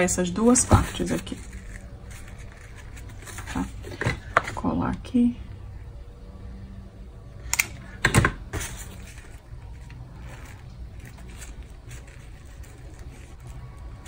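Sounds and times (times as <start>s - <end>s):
ribbon rustling: 0.4s - 4.5s, 8.5s - 14.0s.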